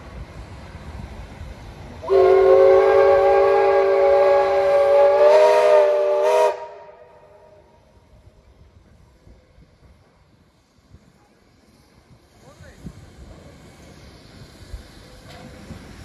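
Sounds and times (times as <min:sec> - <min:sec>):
steam locomotive whistle blast: 0:02.0 - 0:07.7.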